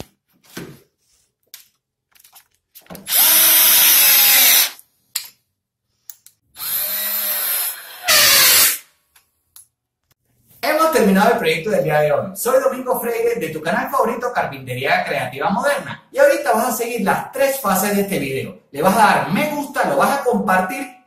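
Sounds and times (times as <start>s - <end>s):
cordless drill driving screws: 3.0s - 4.8s, 6.6s - 8.8s.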